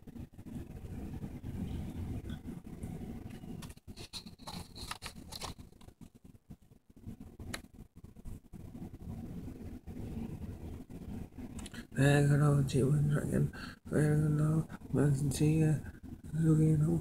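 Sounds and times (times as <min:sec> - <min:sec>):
paper rustling and crinkling: 0:03.6 - 0:06.2.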